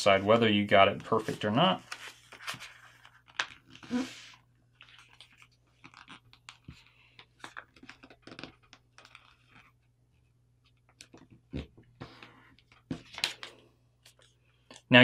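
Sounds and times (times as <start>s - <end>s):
paper crinkling and rustling: 1.0s - 3.9s, 4.7s - 9.8s.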